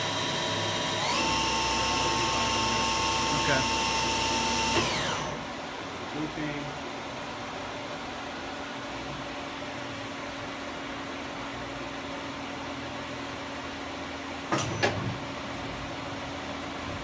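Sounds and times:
machining center humming: 0:00.0 - 0:06.8.

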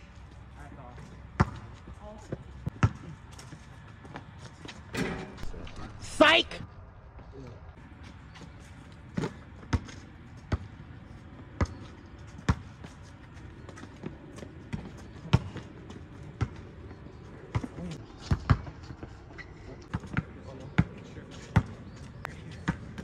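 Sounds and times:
basketball bouncing on asphalt: 0:01.0 - 0:04.8, 0:08.2 - 0:19.1, 0:19.9 - 0:22.0, 0:22.6 - 0:23.0.

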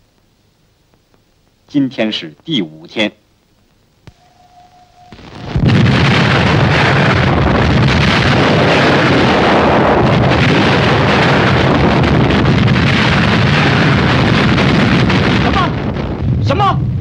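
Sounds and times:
artillery bombardment: 0:05.2 - 0:17.0.

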